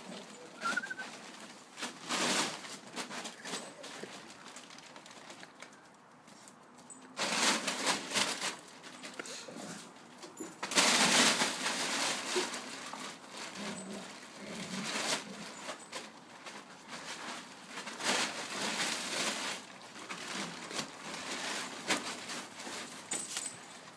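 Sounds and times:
plastic tarpaulin crinkling: 0.0s - 23.9s.

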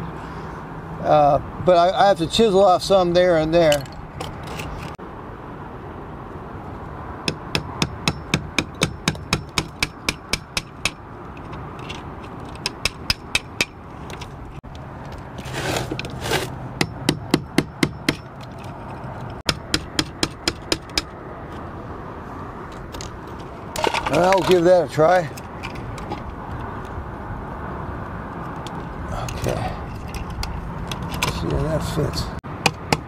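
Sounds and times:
short scraping: 15.4s - 16.6s.

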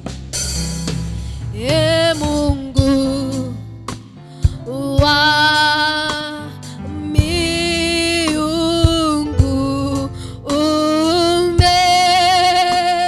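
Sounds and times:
drum hits: 0.0s - 6.3s, 8.3s - 10.6s
band playing: 0.8s - 4.4s
woman singing into a microphone: 1.5s - 3.7s, 4.4s - 13.0s.

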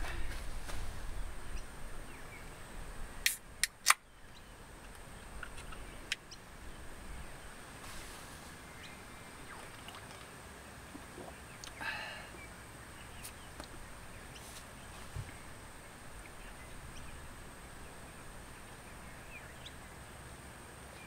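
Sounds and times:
sharp clicks: 3.2s - 4.1s.

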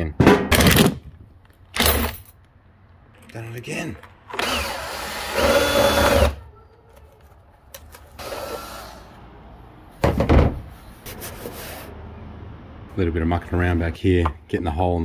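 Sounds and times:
rivet nut tool whining: 4.3s - 6.4s.

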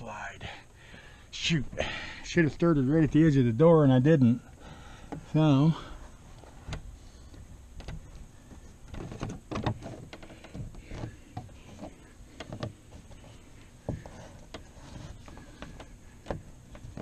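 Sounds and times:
small knocks and clicks: 6.4s - 17.0s
canvas scraping on metal rail: 8.9s - 15.9s.

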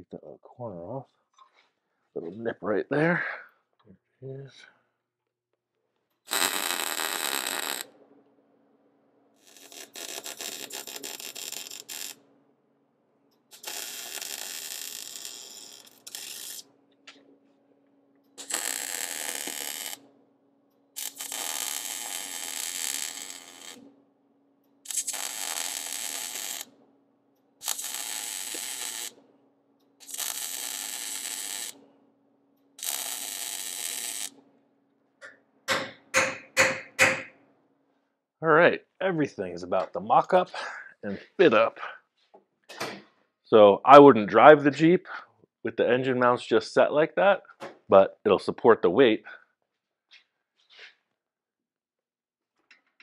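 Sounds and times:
welding arc crackling: 6.2s - 8.0s, 9.4s - 12.2s, 13.3s - 16.8s, 18.4s - 20.0s, 20.9s - 23.9s, 24.8s - 26.7s, 27.6s - 29.2s, 29.9s - 31.8s, 32.8s - 34.4s.

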